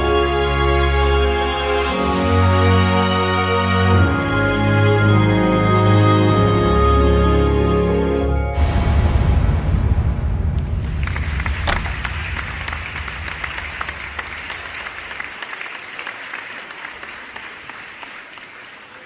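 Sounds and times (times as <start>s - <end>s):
music: 0.0s - 15.1s
audience applauding: 10.6s - 19.0s.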